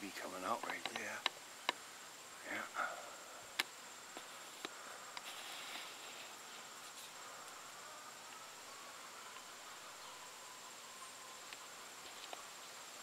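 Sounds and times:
high-pitched insect drone: 0.0 - 13.0
sharp clicks: 0.6 - 1.8.

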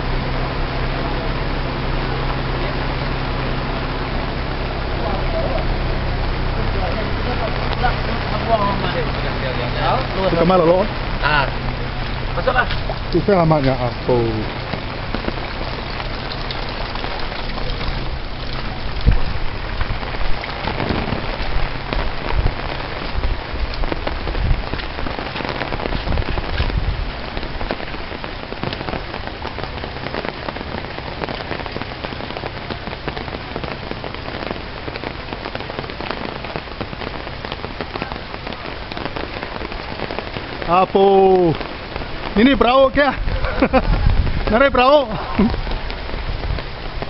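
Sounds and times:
steady rain falling: 0.0 - 47.0
low thumps: 10.8 - 29.1.

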